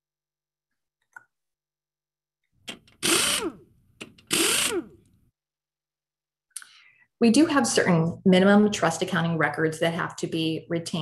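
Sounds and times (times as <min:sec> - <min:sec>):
power tool whirring: 0:02.7 - 0:05.2.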